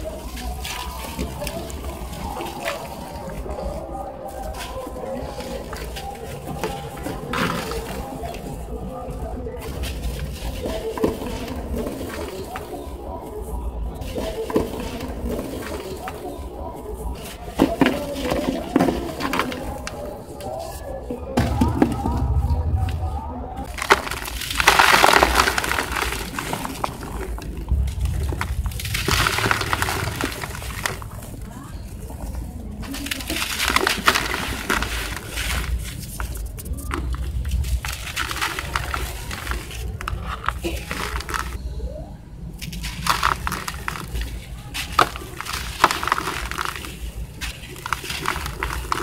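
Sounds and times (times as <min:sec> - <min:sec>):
gritty sand falling into bucket: 0:00.0 - 0:13.0, 0:14.0 - 0:16.4, 0:17.0 - 0:20.7, 0:23.6 - 0:41.6, 0:42.6 - 0:49.0
steady low rumble: 0:21.4 - 0:24.6, 0:25.8 - 0:32.8.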